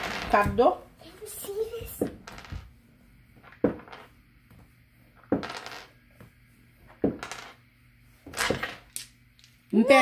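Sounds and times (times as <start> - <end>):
ball bouncing on hard floor: 0.0 - 0.8, 1.4 - 2.8, 3.4 - 7.6, 8.2 - 8.9.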